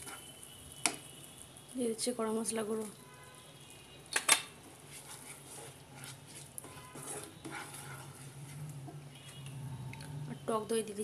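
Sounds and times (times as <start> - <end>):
spatula scraping in frying pan: 0.0 - 1.0, 4.6 - 10.6.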